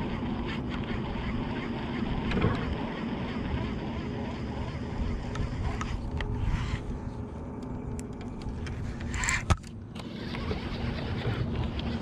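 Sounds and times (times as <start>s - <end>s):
reel click: 4.7s - 6.8s, 7.6s - 10.7s.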